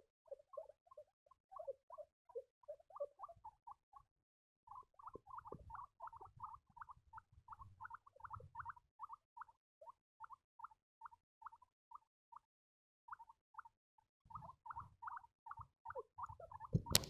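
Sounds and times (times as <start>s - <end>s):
guinea pigs squeaking: 0.0s - 4.1s, 4.7s - 17.0s.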